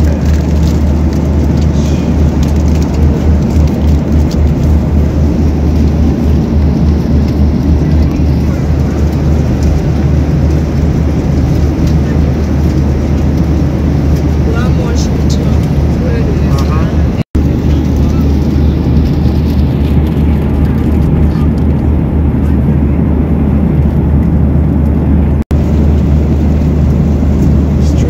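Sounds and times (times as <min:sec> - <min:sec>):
airliner cabin drone: 0:00.0 - 0:28.0.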